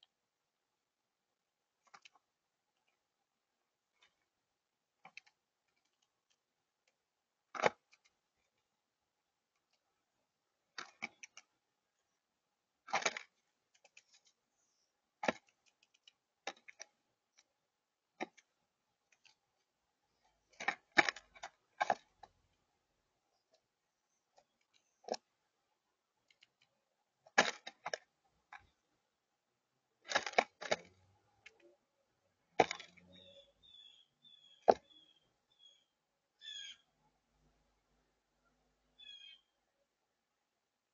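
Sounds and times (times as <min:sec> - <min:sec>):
bird pecking at seeds: 0:10.7 - 0:11.6, 0:30.0 - 0:35.1.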